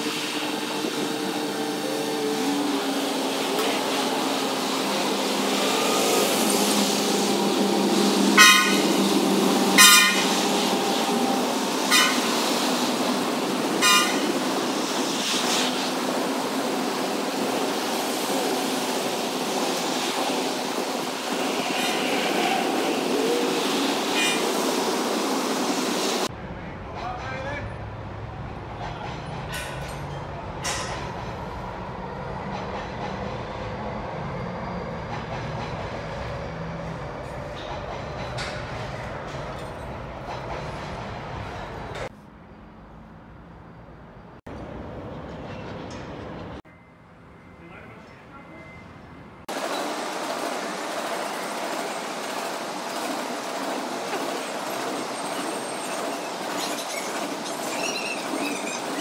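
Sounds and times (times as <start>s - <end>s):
horn tooting: 5.6s - 12.3s, 13.8s - 14.3s.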